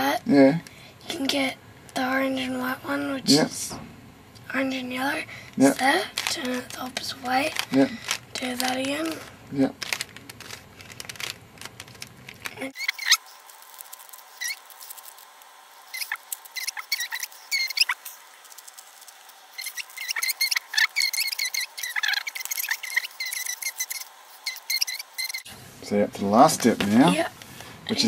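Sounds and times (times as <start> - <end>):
plastic squeaking: 5.6 - 25.5
plastic puzzle cube clicking: 5.8 - 13.2.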